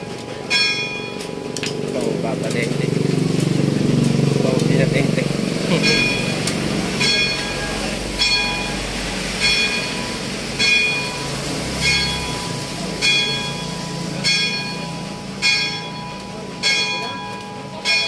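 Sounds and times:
church bell tolling: 0.0s - 1.5s, 5.7s - 18.0s.

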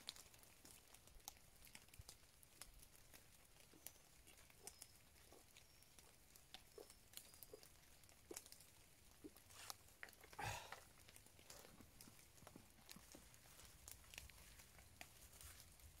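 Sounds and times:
light ticks: 0.0s - 15.9s.

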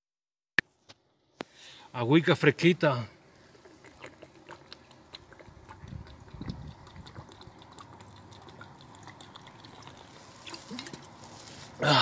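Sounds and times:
man gulping water: 3.2s - 12.0s.

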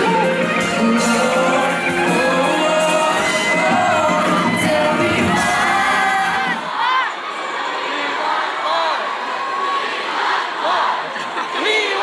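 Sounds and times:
man singing over band: 0.0s - 6.7s
audience shouting along: 1.2s - 12.0s.

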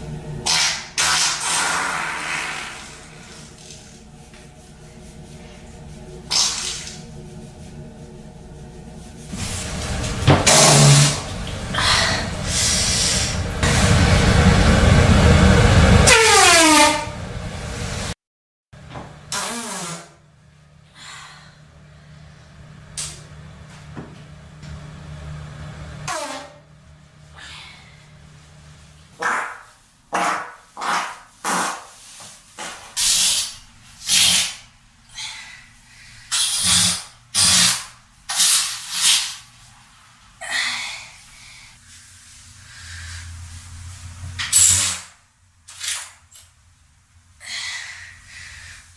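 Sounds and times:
comedic fart sounds: 0.4s - 2.9s, 10.2s - 11.2s, 19.3s - 20.2s, 29.2s - 32.0s, 36.4s - 39.4s, 44.4s - 45.2s.

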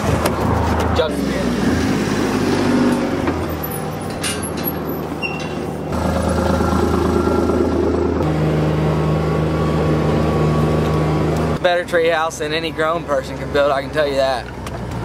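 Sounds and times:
utility vehicle engine running: 2.3s - 11.6s.

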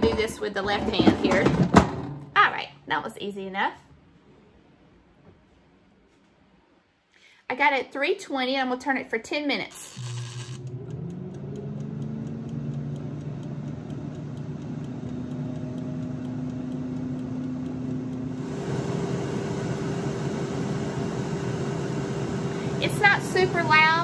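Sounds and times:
air fryer fan whirring: 9.7s - 24.0s
faint fast ticking: 9.9s - 18.4s.

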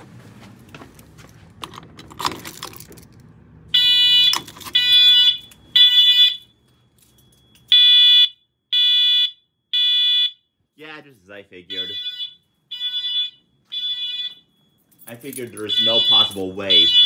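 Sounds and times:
pulsing alarm horn tone: 3.7s - 6.7s, 11.6s - 14.8s, 15.6s - 17.0s.

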